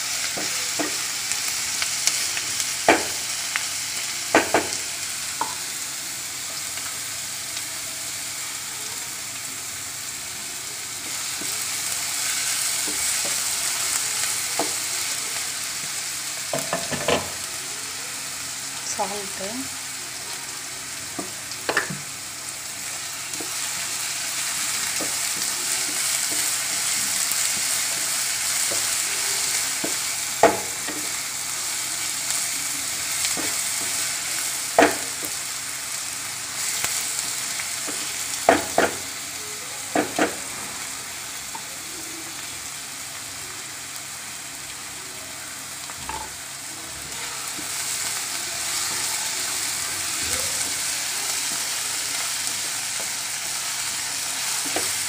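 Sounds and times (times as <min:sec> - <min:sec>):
onions sizzling in oil: 0:00.0 - 0:55.0
spatula knocking on pan: 0:29.8 - 0:30.7.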